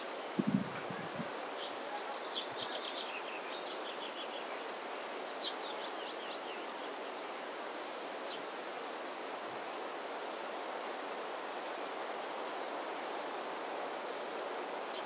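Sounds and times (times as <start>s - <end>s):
wind noise on microphone: 0.3s - 1.4s
small birds singing: 1.1s - 7.4s.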